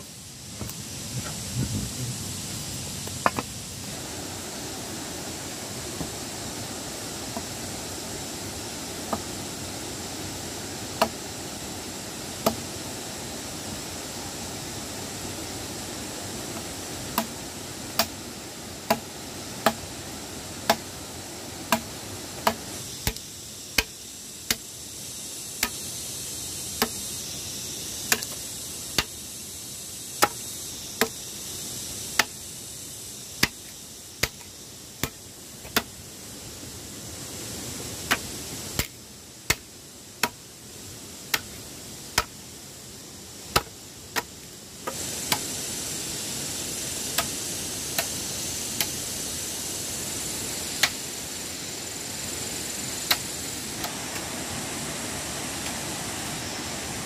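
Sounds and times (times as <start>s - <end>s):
steady background hiss: 0.0s - 57.0s
hand tool striking wood: 3.0s - 3.5s, 7.3s - 7.6s, 9.1s - 9.3s, 11.0s - 11.2s, 12.4s - 12.6s, 16.6s - 18.2s, 18.8s - 19.9s, 20.6s - 21.0s, 21.7s - 24.7s, 25.6s - 25.8s, 26.8s - 27.0s, 28.1s - 29.2s, 30.2s - 31.2s, 32.1s - 32.4s, 33.4s - 36.0s, 38.0s - 40.4s, 41.2s - 42.4s, 43.5s - 45.5s, 47.1s - 48.2s, 48.8s - 49.0s, 50.8s - 51.0s, 53.0s - 54.3s.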